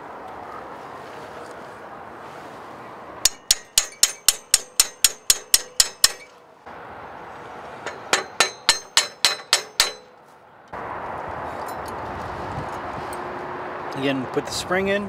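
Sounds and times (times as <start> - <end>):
hammer striking steel: 3.2 - 6.4, 7.8 - 10.2.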